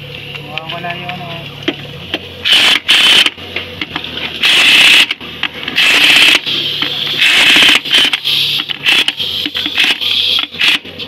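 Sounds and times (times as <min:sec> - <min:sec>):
ratchet wrench clicking: 0:02.4 - 0:03.4, 0:04.4 - 0:10.8.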